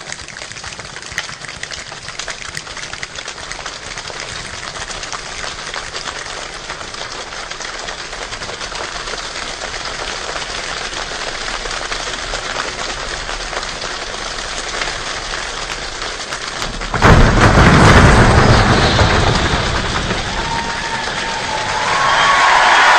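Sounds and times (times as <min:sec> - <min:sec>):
fingers snapping and hands patting: 0:00.0 - 0:04.5.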